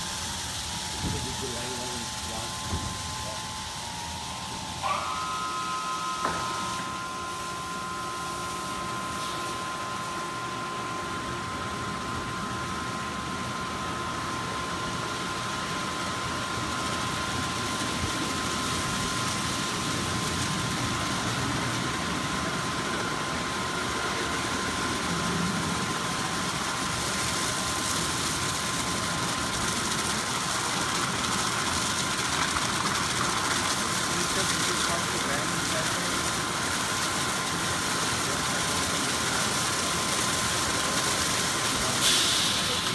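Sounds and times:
high whine: 0.0 - 14.8
mechanical hum: 0.0 - 42.9
spray hiss: 41.8 - 42.9.

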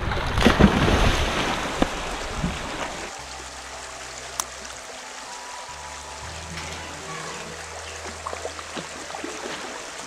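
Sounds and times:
people splashing in river: 0.0 - 3.1
river water flowing: 0.0 - 10.0.

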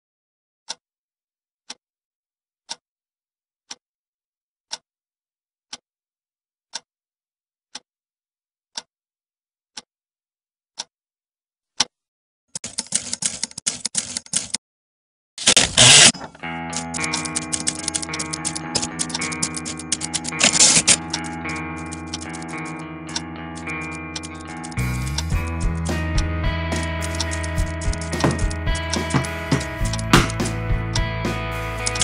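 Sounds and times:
typewriter keys clattering: 12.6 - 14.6, 15.4 - 22.8, 23.5 - 24.8, 26.8 - 30.5
clock ticking: 15.5 - 31.2, 31.8 - 32.0.

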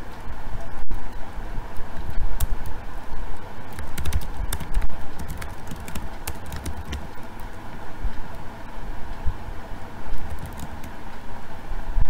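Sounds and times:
computer keyboard key clicks: 3.7 - 7.2, 10.2 - 10.9.

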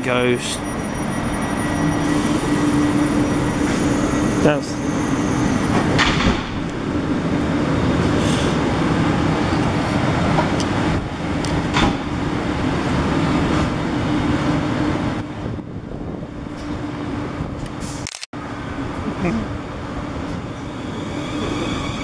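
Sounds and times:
train wheels noise: 0.0 - 6.9
electric train hum: 0.0 - 22.0.

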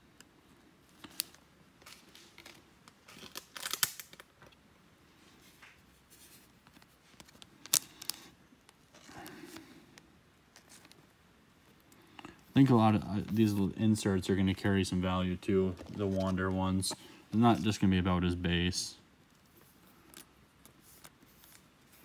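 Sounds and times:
plastic crinkly rustles: 0.9 - 4.6, 15.4 - 17.8.

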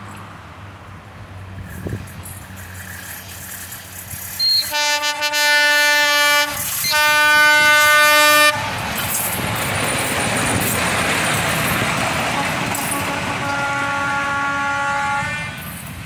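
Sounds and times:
locomotive engine passing: 0.0 - 16.0
train wheels on rails: 1.0 - 16.0
locomotive horn blasts: 4.4 - 8.8, 12.3 - 15.7.

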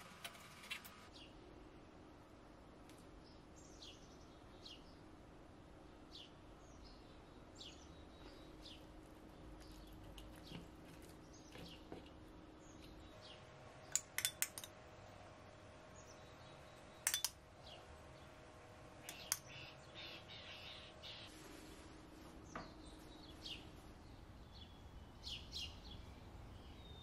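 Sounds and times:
low steady hum: 0.0 - 27.0
metal spoon clinking on bowl: 17.0 - 17.4
downward-sweeping bird chirps: 19.0 - 21.4.

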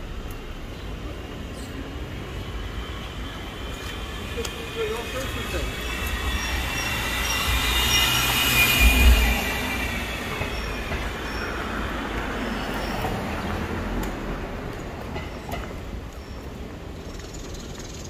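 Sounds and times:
low train rumble: 0.0 - 18.0
subway train wheels squealing: 1.2 - 14.4.

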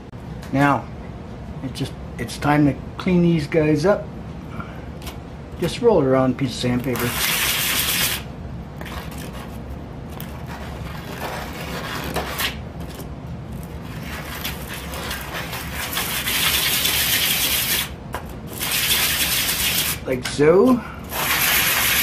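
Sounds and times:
pipe ring scraping on sandpaper: 6.9 - 8.2, 10.3 - 12.6, 13.8 - 17.9, 18.5 - 20.0, 21.1 - 22.0.

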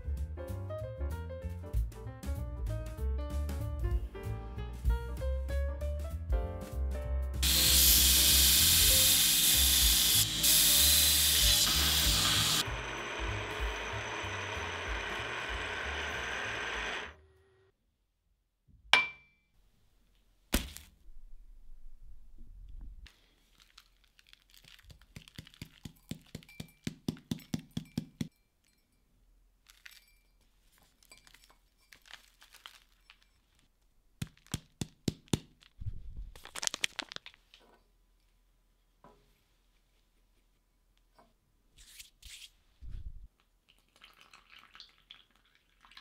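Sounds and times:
end mill cutting steel: 7.4 - 17.6.

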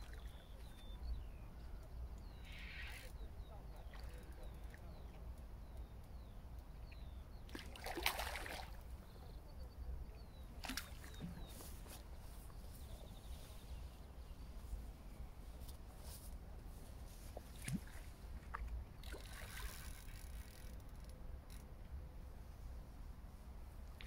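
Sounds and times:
small birds chirping: 0.0 - 16.2.

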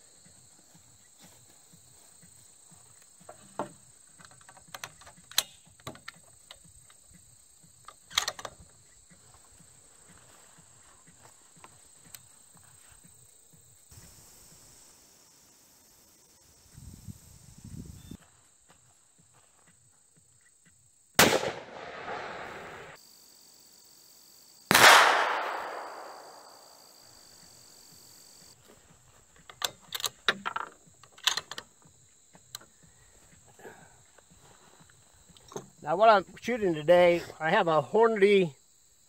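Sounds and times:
rifle handling clicks and knocks: 3.2 - 7.0, 7.8 - 8.8, 29.4 - 31.7
rifle shots echoing: 21.2 - 23.0, 24.7 - 26.6.

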